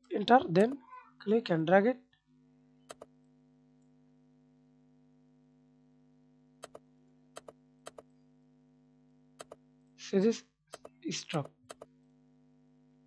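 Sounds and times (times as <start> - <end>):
computer mouse clicking: 2.9 - 3.1, 6.6 - 6.8, 7.4 - 8.1, 9.4 - 9.6, 10.7 - 11.9.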